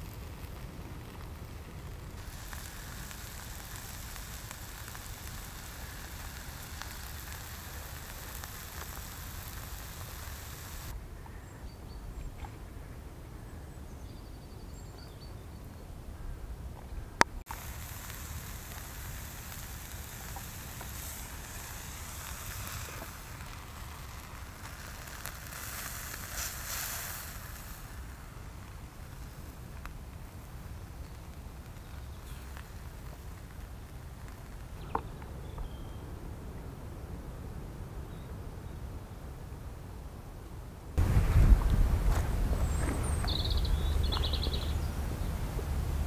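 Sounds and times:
low rumble of stove: 0:00.0 - 0:11.5, 0:17.0 - 0:39.0, 0:40.8 - 0:46.0
meat sizzling on a hot plate: 0:00.1 - 0:10.9, 0:17.5 - 0:29.8.

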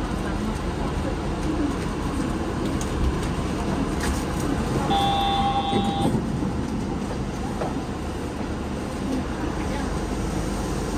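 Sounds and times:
train hum and rumble: 0:00.0 - 0:10.9
electronic beep: 0:04.9 - 0:06.1.

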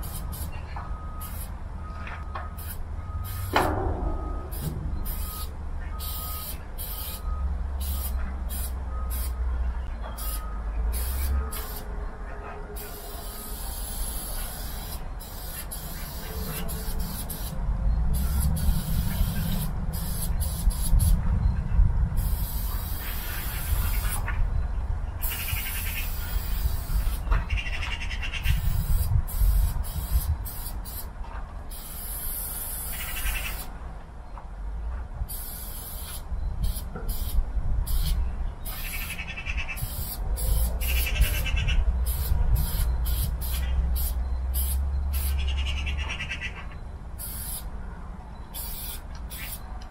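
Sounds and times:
spray-paint can hissing: 0:00.0 - 0:00.5, 0:01.2 - 0:01.5, 0:02.6 - 0:03.5, 0:04.5 - 0:07.2, 0:07.8 - 0:09.4, 0:10.2 - 0:11.9, 0:12.8 - 0:17.6, 0:18.2 - 0:21.2, 0:22.2 - 0:24.2, 0:25.2 - 0:27.2, 0:28.5 - 0:31.1, 0:31.7 - 0:33.7, 0:35.3 - 0:39.1, 0:39.8 - 0:41.4, 0:42.1 - 0:45.4, 0:47.2 - 0:47.7, 0:48.6 - 0:49.6
low rumble: 0:03.5 - 0:05.9.

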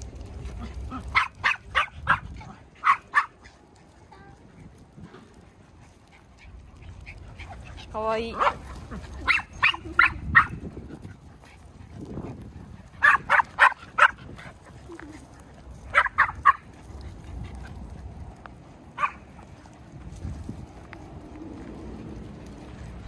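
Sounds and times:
small dog yapping: 0:00.6 - 0:03.4, 0:13.0 - 0:14.2, 0:15.9 - 0:16.7.

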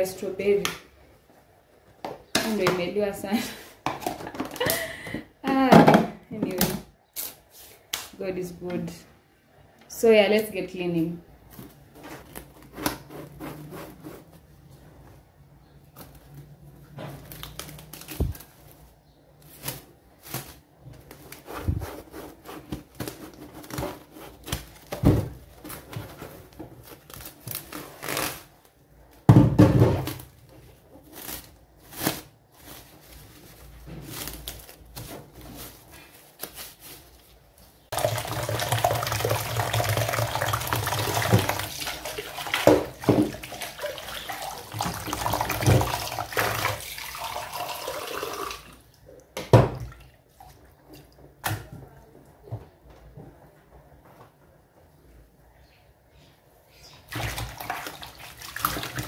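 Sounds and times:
cling film and plastic rustling: 0:15.8 - 0:29.2, 0:30.0 - 0:38.0
water running into plastic basin: 0:37.9 - 0:49.0, 0:57.1 - 0:59.0.

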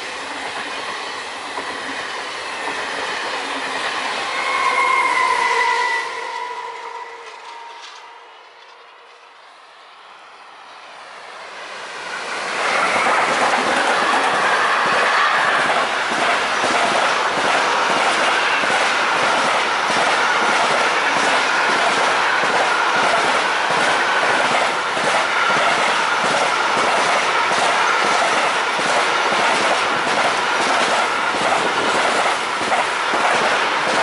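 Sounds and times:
freight train passing: 0:00.0 - 0:34.0
high wheel squeal: 0:04.0 - 0:08.9.

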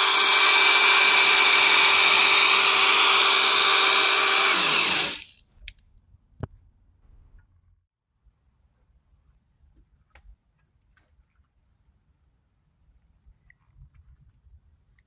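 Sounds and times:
electric drill whirring: 0:00.0 - 0:05.3.

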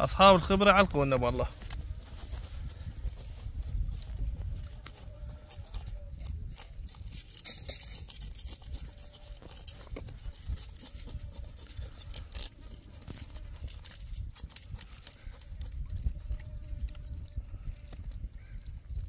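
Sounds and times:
knife scraping fish: 0:05.1 - 0:15.8.

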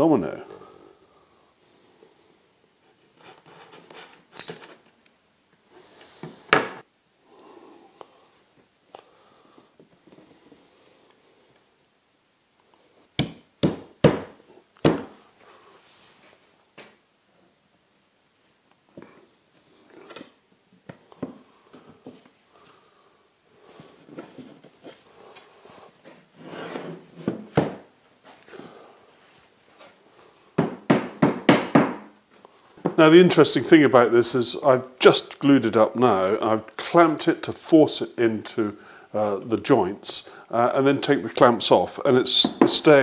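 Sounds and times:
handling and rubbing: 0:02.8 - 0:05.0, 0:15.0 - 0:16.6, 0:23.6 - 0:30.6.

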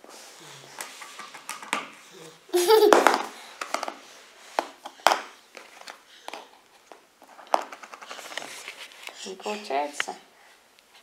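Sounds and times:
plastic rings clattering on floor: 0:02.6 - 0:09.2.

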